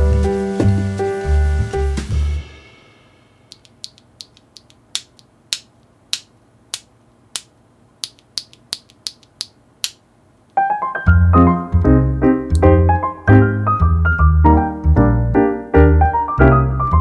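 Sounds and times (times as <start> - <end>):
piano music with bass line: 0.0 - 2.6, 10.6 - 17.0
keyboard parts clicking: 3.5 - 10.0.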